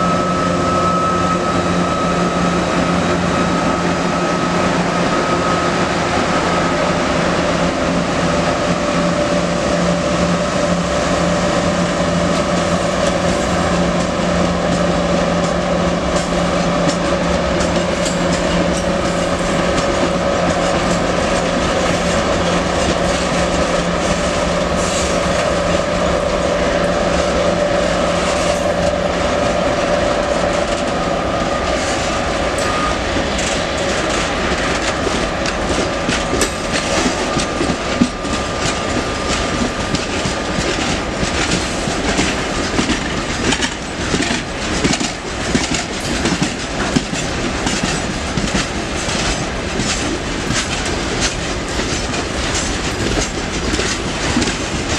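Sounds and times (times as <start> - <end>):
freight train rumbling past: 0.0 - 54.9
wheels clattering over rail joints: 26.8 - 54.9.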